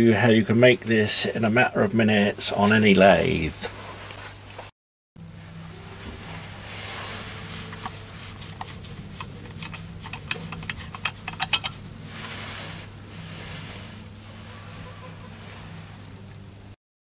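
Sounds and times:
steady low hum: 5.2 - 16.8
metallic clicks of unscrewing filter: 7.6 - 12.4.

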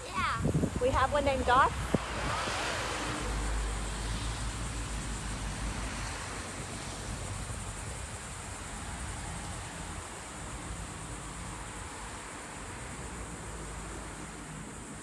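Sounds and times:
wind buffeting microphone: 0.0 - 5.0.

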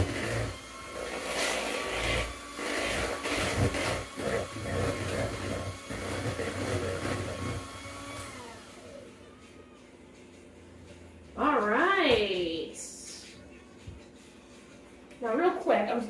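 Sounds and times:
beaters churning batter in bowl: 0.0 - 8.4
electric hand mixer whining: 0.0 - 9.3.

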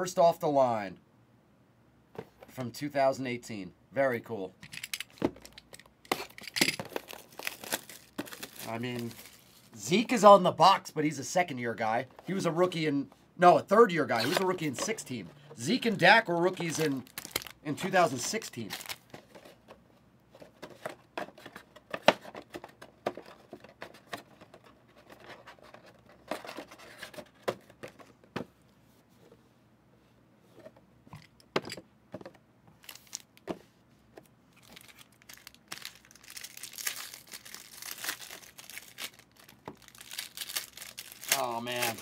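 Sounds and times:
card packs clicking and tapping: 5.1 - 9.4, 15.9 - 19.8, 34.6 - 42.0
foil wrappers crinkling and tearing: 6.2 - 9.8, 16.6 - 19.1, 32.8 - 33.4, 34.6 - 42.0.

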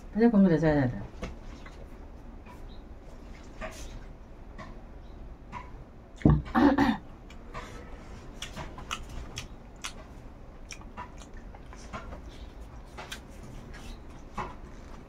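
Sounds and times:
person chewing crunchy food: 7.2 - 15.0
wet mouth clicks: 8.4 - 10.1, 10.7 - 12.1.

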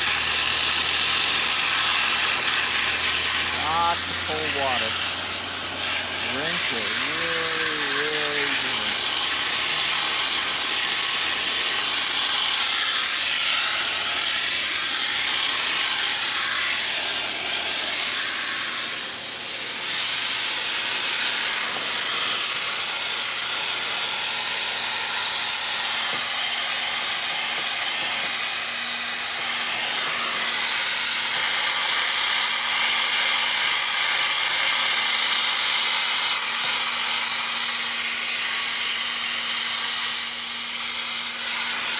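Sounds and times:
hose spray hitting radiator: 0.0 - 12.1.

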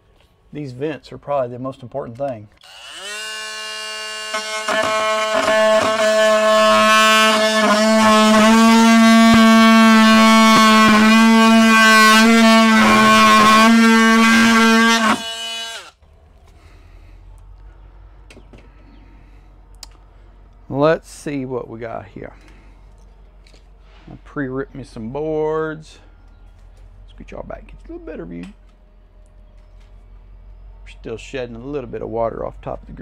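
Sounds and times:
cordless drill whining: 2.6 - 16.0.

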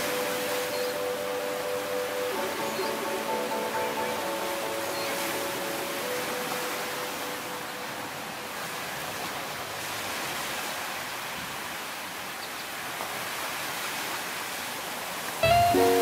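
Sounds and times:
plucked-string music: 0.0 - 7.8, 15.4 - 16.0
ocean surf on a beach: 0.0 - 16.0.

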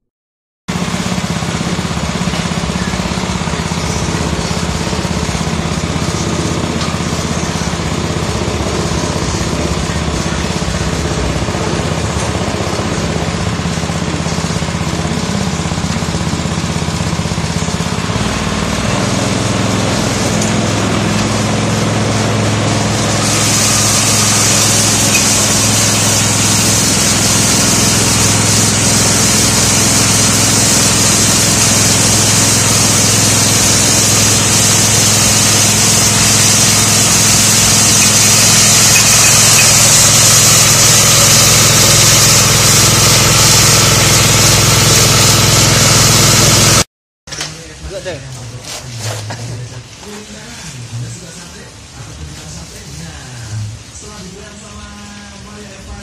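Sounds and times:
pepper mill motor hum: 0.7 - 46.8
high hiss: 22.9 - 43.8.

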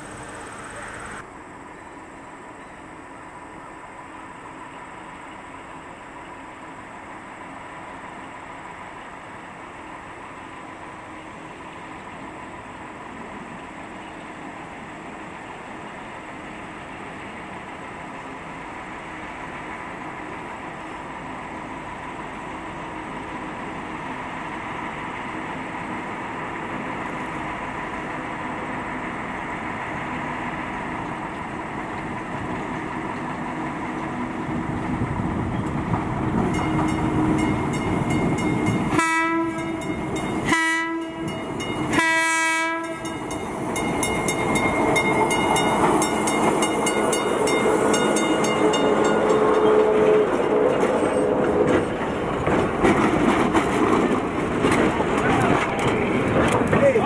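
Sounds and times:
train wheels clicking on rails: 0.0 - 1.2, 30.0 - 42.1, 42.8 - 57.0
diesel locomotive engine: 0.0 - 57.0
locomotive horn blasts: 38.9 - 43.2, 48.6 - 50.8.

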